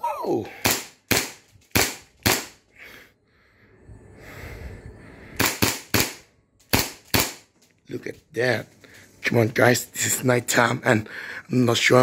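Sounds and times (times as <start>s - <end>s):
airsoft pistol shots: 0.6s - 2.6s, 5.4s - 7.5s.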